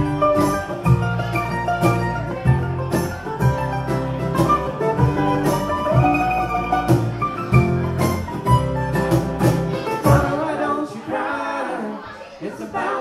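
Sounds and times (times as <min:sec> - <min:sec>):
acoustic string band playing: 0:00.0 - 0:13.0.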